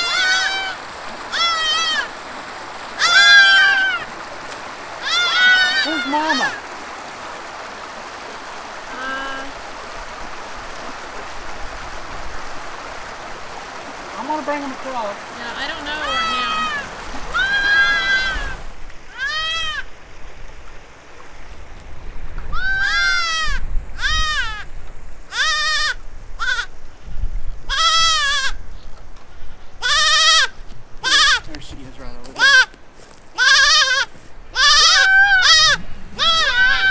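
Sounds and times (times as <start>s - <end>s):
goat kid bleating: 0.0s - 2.1s, 3.0s - 4.1s, 5.0s - 6.6s, 15.8s - 19.9s, 22.5s - 24.7s, 25.3s - 26.7s, 27.7s - 28.6s, 29.8s - 31.5s, 32.4s - 36.9s
creek water running: 0.0s - 36.9s.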